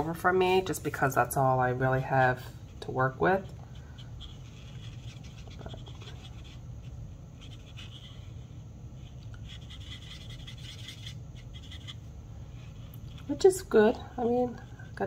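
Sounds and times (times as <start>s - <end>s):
faint low hum: 0.0s - 15.0s
marker scratching on card: 3.7s - 12.0s.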